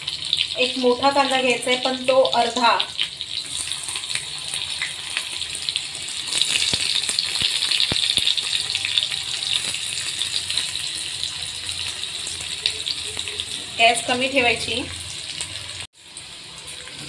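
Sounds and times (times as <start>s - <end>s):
onion frying in hot oil: 0.0s - 17.0s
oil popping: 6.3s - 8.6s.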